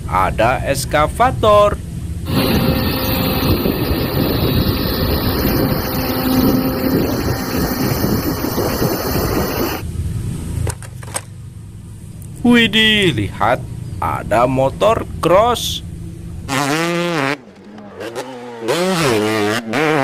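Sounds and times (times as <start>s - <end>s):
excavator diesel engine running: 2.3s - 9.8s.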